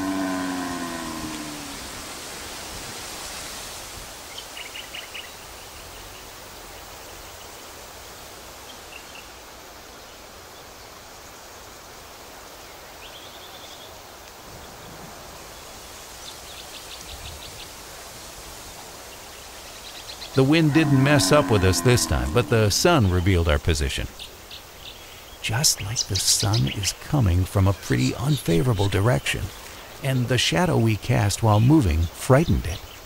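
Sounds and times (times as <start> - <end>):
forest background noise: 0.0 - 33.0.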